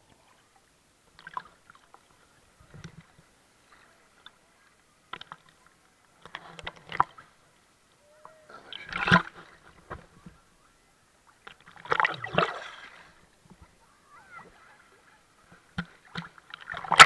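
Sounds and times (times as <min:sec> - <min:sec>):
sea water sloshing and splashing: 0:08.6 - 0:09.9, 0:11.4 - 0:13.6, 0:14.4 - 0:17.0.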